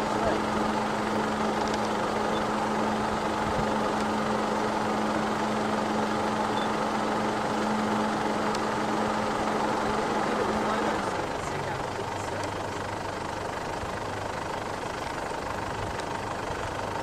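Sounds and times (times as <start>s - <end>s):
vehicle engine idling: 0.0s - 17.0s.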